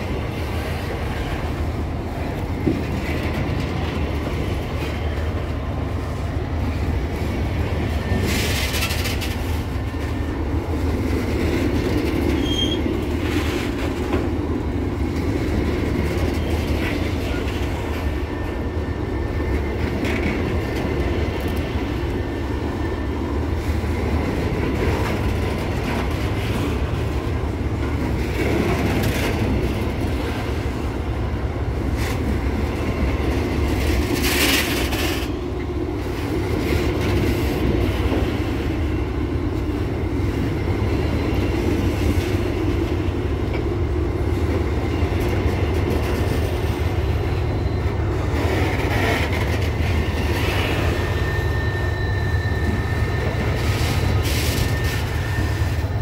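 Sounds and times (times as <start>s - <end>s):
freight wagons rumbling on rails: 0.0s - 56.0s
wheel squeals: 12.2s - 13.7s, 46.1s - 56.0s.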